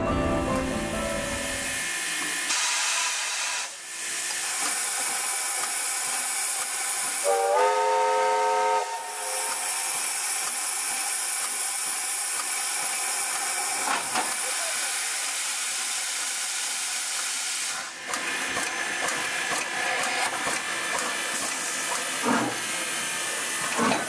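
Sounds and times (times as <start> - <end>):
steam hissing: 1.2 - 24.0
steam whistle blast: 7.2 - 9.8.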